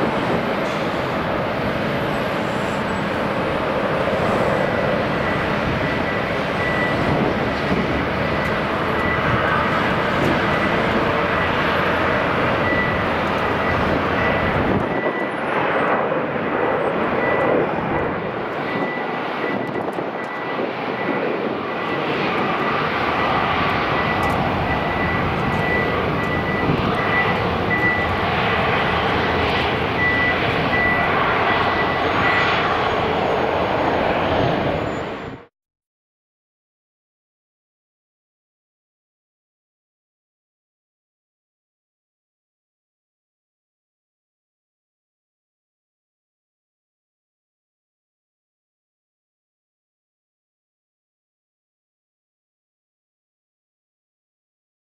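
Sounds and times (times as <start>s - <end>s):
jet engine roar with whine: 0.0s - 35.5s.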